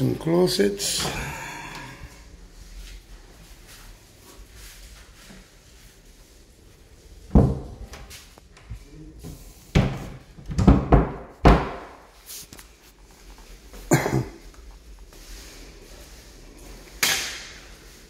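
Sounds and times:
closet door thuds: 7.3s - 7.8s, 9.8s - 12.0s.

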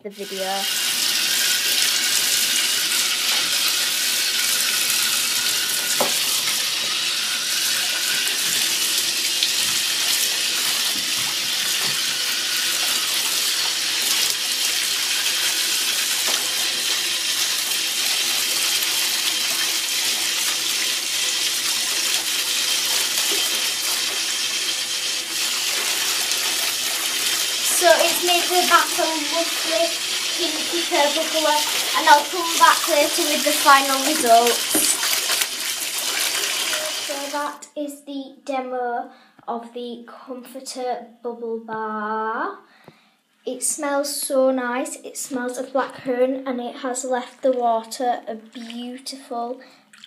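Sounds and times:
tap running into bathtub: 0.7s - 37.4s.

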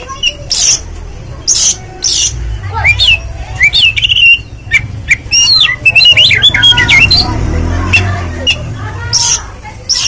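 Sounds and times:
bird singing whistled notes: 1.5s - 7.3s.

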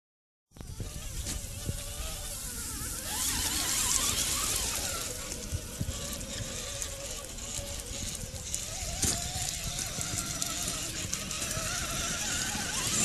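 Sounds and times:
electric motor whining: 0.5s - 13.0s
tyres hissing through wet grass: 2.0s - 5.3s.

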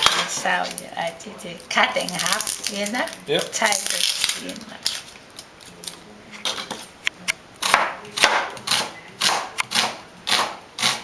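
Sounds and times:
knife chopping on plastic board: 7.6s - 11.0s.

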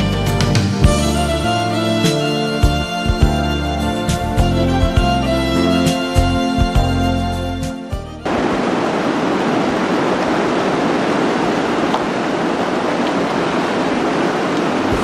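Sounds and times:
background music: 0.0s - 8.3s
river rushing: 0.1s - 7.6s, 8.2s - 15.0s.

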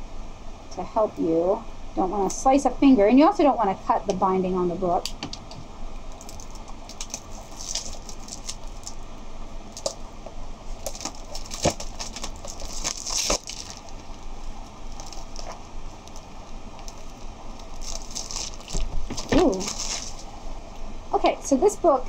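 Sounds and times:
wrapping crinkling: 6.1s - 9.1s, 9.7s - 20.6s.

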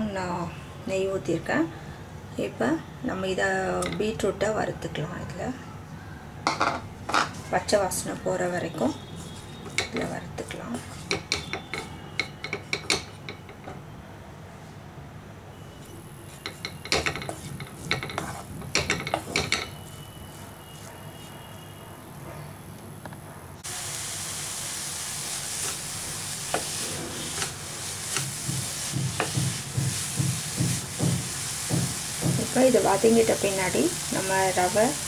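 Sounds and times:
wooden spatula scraping a metal pan: 8.7s - 13.2s, 16.2s - 21.4s, 25.5s - 35.0s
steady sizzling hiss: 15.6s - 21.7s, 23.6s - 35.0s.

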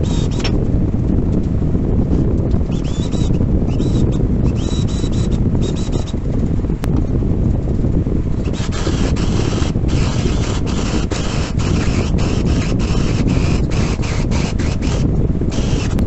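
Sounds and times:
cordless drill boring into plywood: 0.0s - 0.5s, 2.7s - 6.1s, 8.4s - 16.0s
steady low rumble: 0.0s - 16.0s.

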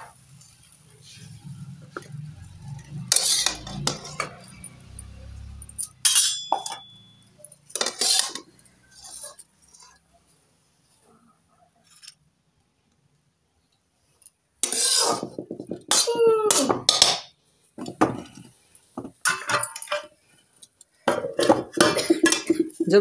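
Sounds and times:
steel spatula scraping a metal wok: 2.5s - 7.1s, 7.7s - 10.0s, 14.6s - 16.1s.

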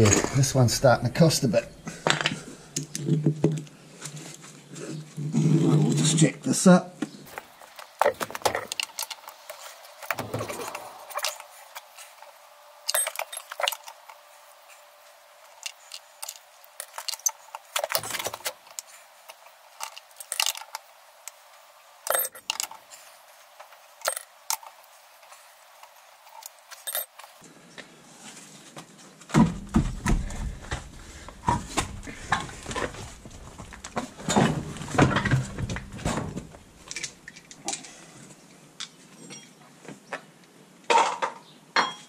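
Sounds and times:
wheel brace clinking on nuts: 12.9s - 14.1s, 22.1s - 22.8s, 24.0s - 24.7s, 26.4s - 27.4s.

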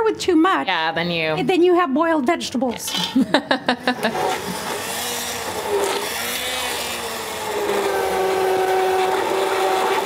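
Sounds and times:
immersion blender motor whine: 3.8s - 10.0s.

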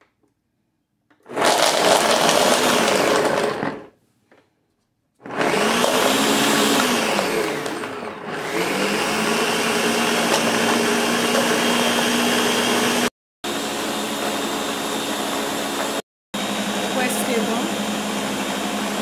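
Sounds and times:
blender motor grinding: 1.2s - 4.0s, 5.2s - 19.0s.

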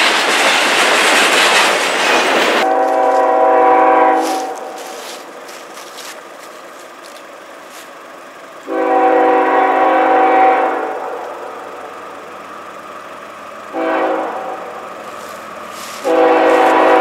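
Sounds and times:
locomotive air horn blast: 2.6s - 5.4s, 8.6s - 11.9s, 13.7s - 17.0s.

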